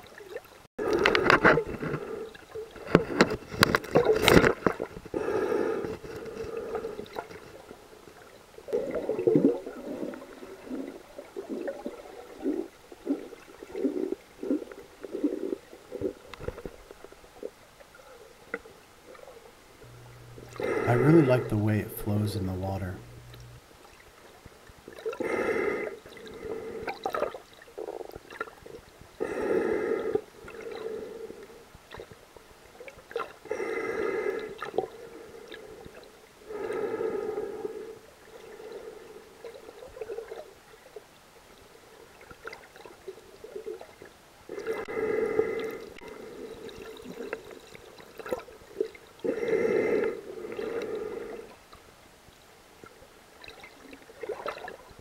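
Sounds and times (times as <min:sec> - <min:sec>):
breathing through snorkel tube: 0:05.1 - 0:07.2, 0:20.4 - 0:21.5, 0:25.2 - 0:27.2, 0:29.2 - 0:31.5, 0:33.5 - 0:35.8, 0:36.5 - 0:39.3, 0:44.5 - 0:46.9, 0:49.2 - 0:51.6.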